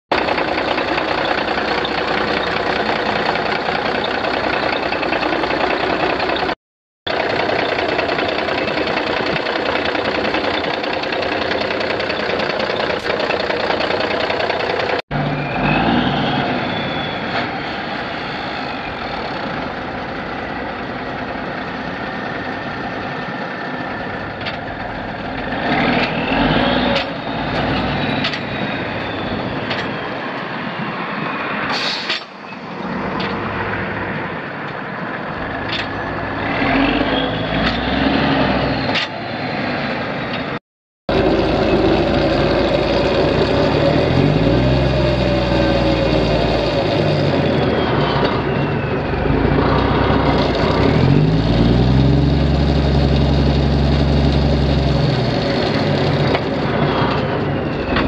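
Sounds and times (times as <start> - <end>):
diesel truck engine running: 0.1 - 17.1, 35.0 - 58.0.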